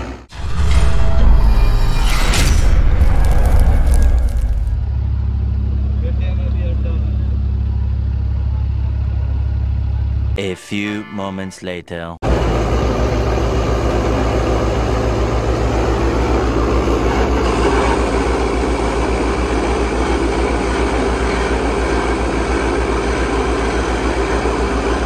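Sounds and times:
diesel engine running under load: 0:04.1 - 0:10.4, 0:12.2 - 0:25.0.

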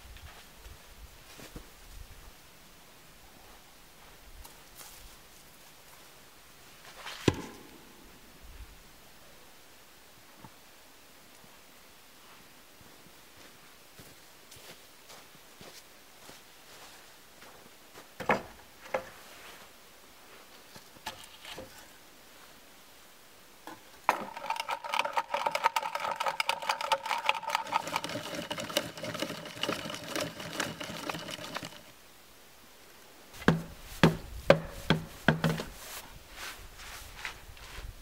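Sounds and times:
power drill boring into log: 0:24.1 - 0:31.9
wooden knocks: 0:33.4 - 0:35.7.

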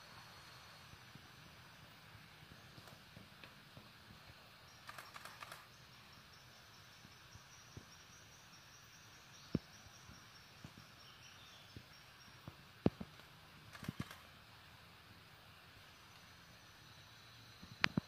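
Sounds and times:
high insect tone: 0:00.0 - 0:14.7
sharp clicks: 0:04.8 - 0:05.7, 0:12.8 - 0:14.3.

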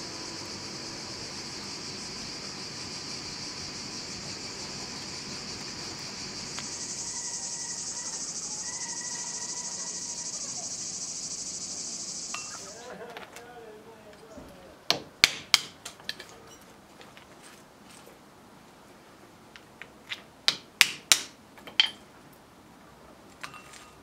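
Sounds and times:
cicadas chirring: 0:00.0 - 0:13.0.

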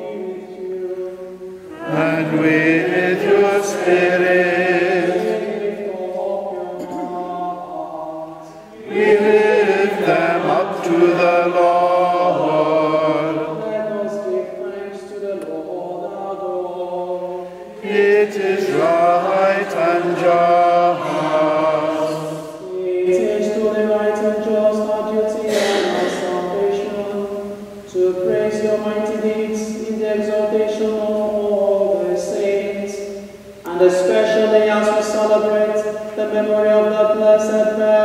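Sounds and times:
congregation singing together: 0:00.0 - 0:38.0
single voice intoning: 0:25.5 - 0:26.3.

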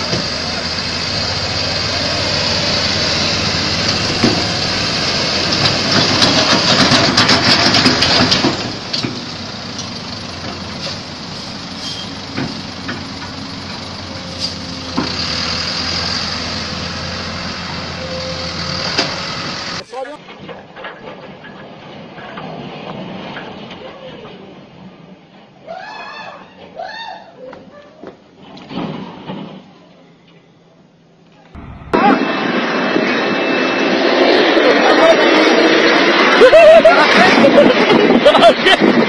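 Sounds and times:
truck engine under load: 0:00.0 - 0:20.2, 0:31.6 - 0:33.4.

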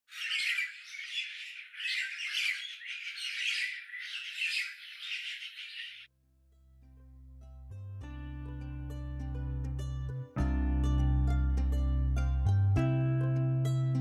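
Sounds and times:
birds squawking and chattering: 0:00.1 - 0:06.1.

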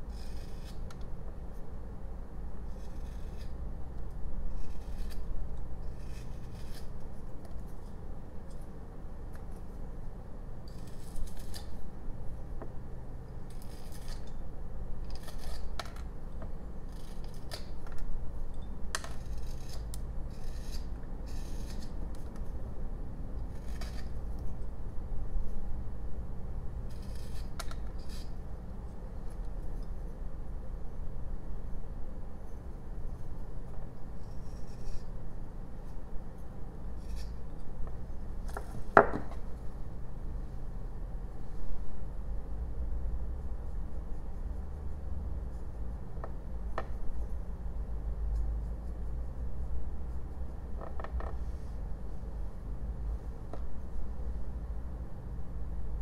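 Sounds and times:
steady low hum: 0:00.0 - 0:56.0
knife scraping wood: 0:00.1 - 0:01.1, 0:02.7 - 0:03.6, 0:04.5 - 0:07.9, 0:10.7 - 0:11.8, 0:13.5 - 0:14.4, 0:15.0 - 0:16.1, 0:16.8 - 0:18.0, 0:19.0 - 0:22.5, 0:23.4 - 0:24.6, 0:26.8 - 0:28.4, 0:34.2 - 0:35.2, 0:36.9 - 0:37.8
knife laid on wooden bench: 0:39.0 - 0:39.4.

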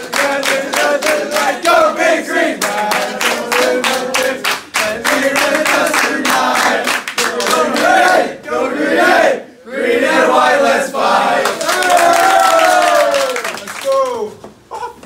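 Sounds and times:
people clapping in rhythm: 0:00.0 - 0:08.4, 0:11.2 - 0:14.3
group singing together: 0:00.0 - 0:11.6.

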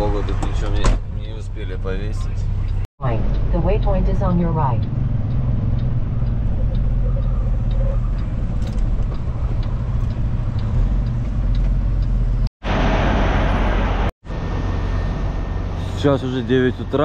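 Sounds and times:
faint regular ticking: 0:01.6 - 0:12.5.

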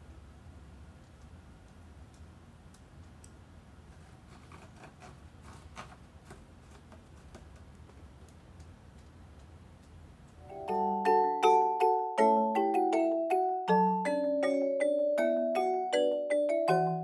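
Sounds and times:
cat scratching rope post: 0:03.8 - 0:08.4.

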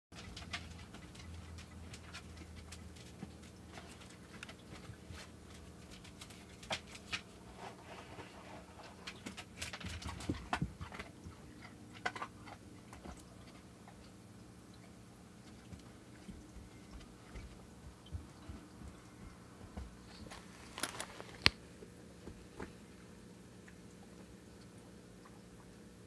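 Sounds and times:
aquarium filter humming: 0:00.2 - 0:26.0
soft clicks and rustles: 0:14.8 - 0:22.8.

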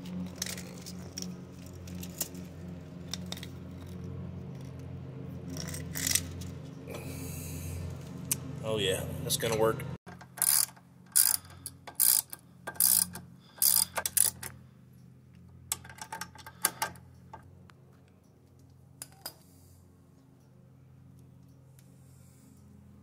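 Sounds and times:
steady low hum: 0:00.0 - 0:23.0
ratchet wrench clicking: 0:10.1 - 0:14.5.

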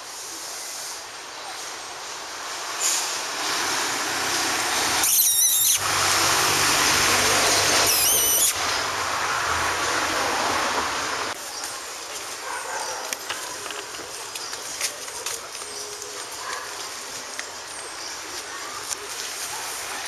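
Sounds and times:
rushing street noise: 0:00.0 - 0:20.0
high wavering squeals: 0:05.0 - 0:05.8, 0:07.8 - 0:08.6.

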